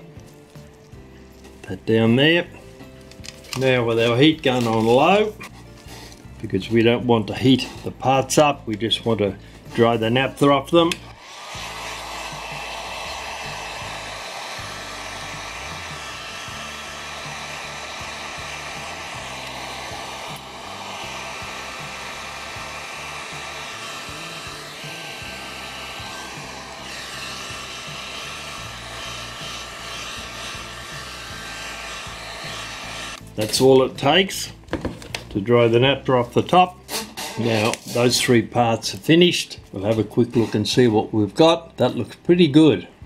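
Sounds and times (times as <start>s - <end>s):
heat gun fan whining: 10.9s - 33.2s.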